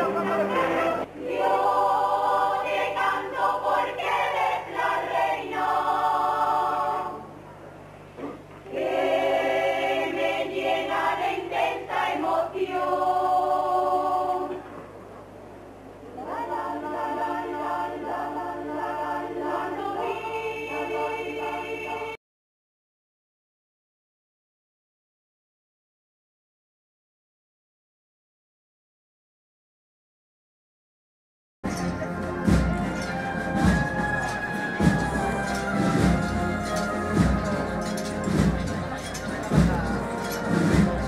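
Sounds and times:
choir singing a hymn: 0.0s - 7.3s, 8.7s - 14.6s, 16.2s - 22.2s, 31.7s - 41.0s.

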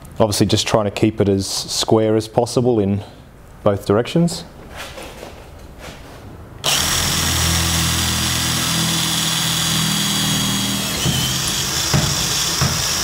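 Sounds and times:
electric drill whining into metal: 6.6s - 13.0s.

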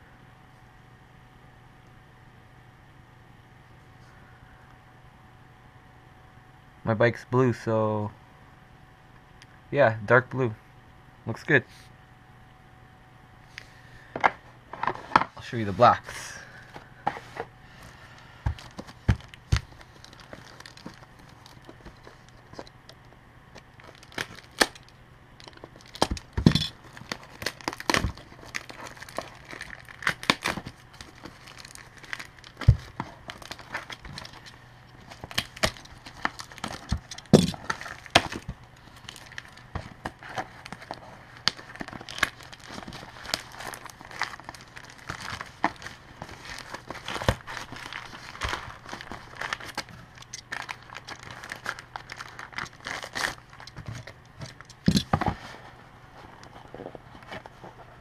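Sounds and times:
plastic packaging crinkling: 18.5s - 55.6s.

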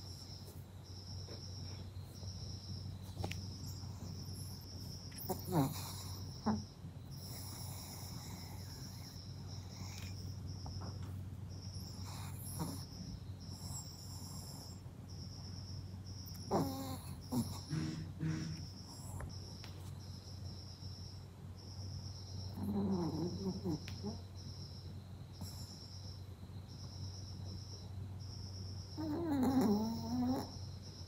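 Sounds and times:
crickets chirping: 0.0s - 31.0s
short nasal snorts: 17.5s - 19.1s.

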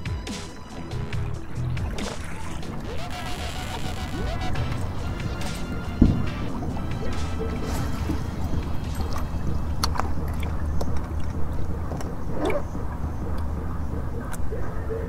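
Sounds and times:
boat low hum: 0.0s - 15.0s
fishing gear clicks and taps: 7.2s - 12.2s.

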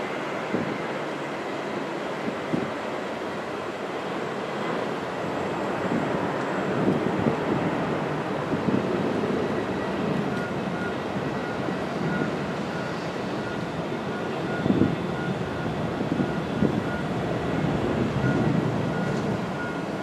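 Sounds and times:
jet engines roaring: 0.0s - 20.0s
faint beeping: 18.1s - 20.0s.

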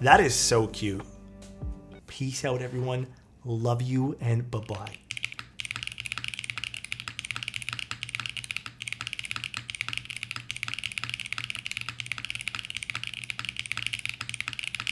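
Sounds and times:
fast mechanical keyboard typing: 4.6s - 14.9s.

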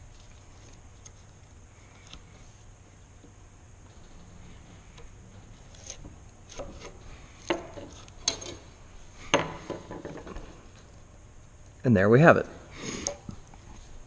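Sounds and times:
chisel scraping wood: 4.4s - 8.4s.

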